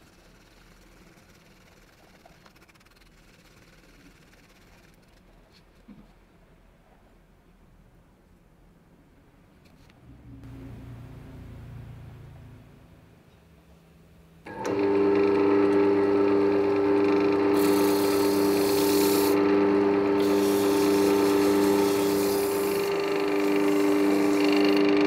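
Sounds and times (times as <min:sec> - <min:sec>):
lathe motor humming: 0:14.5 - 0:25.0
sandpaper hissing: 0:17.6 - 0:19.4, 0:20.2 - 0:24.7.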